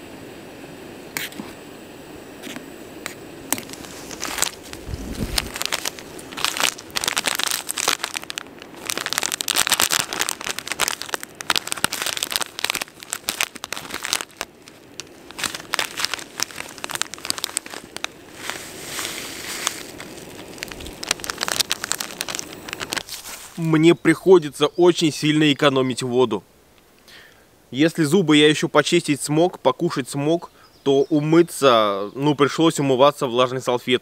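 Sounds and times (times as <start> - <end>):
plastic gear rustling and crackling: 3.5 - 23.7.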